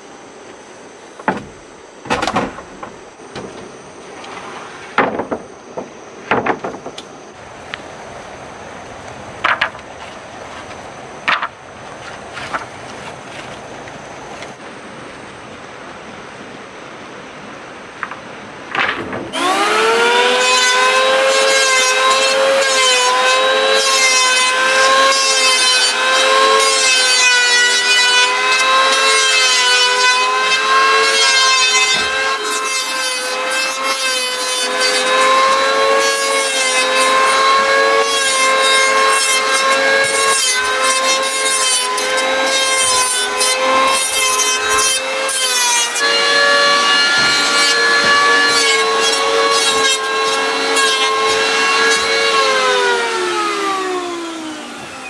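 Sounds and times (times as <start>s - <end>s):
electric planer shaving wood: 18.8s - 55.0s.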